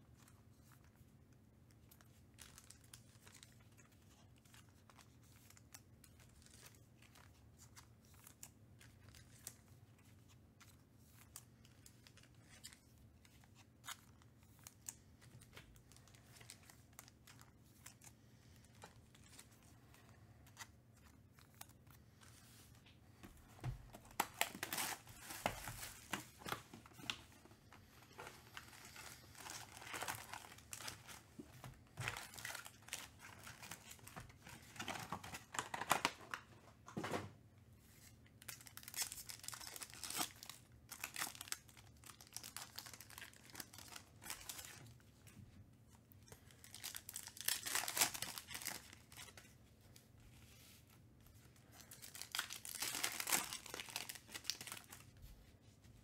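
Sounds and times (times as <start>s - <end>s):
foil packs tearing and crinkling: 46.7s - 49.1s, 52.0s - 55.0s.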